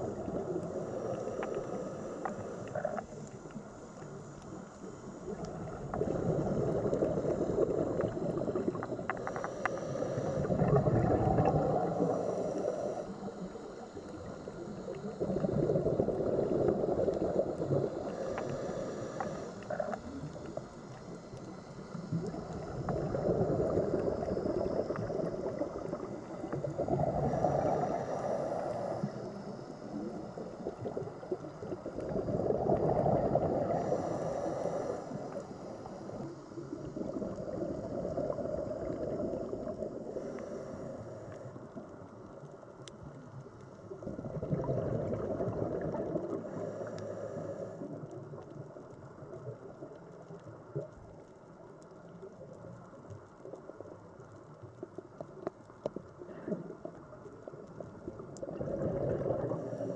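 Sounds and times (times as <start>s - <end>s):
faint regulator hisses: 0.0s - 42.8s, 46.2s - 48.2s
bubbling exhalation underwater: 5.3s - 9.0s, 10.4s - 12.2s, 15.2s - 18.4s, 22.2s - 28.0s, 30.6s - 34.0s, 43.9s - 46.8s, 58.4s - 59.9s.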